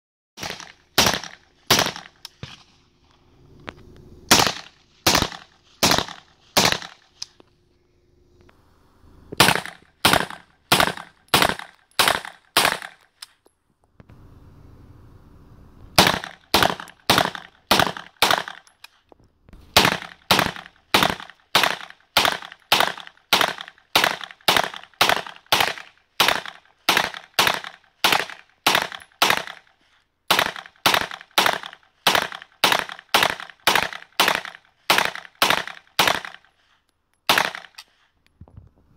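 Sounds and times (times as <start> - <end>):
gunshots with echo: 0.4 - 2.2, 4.3 - 7.0, 9.4 - 13.0, 16.0 - 18.6.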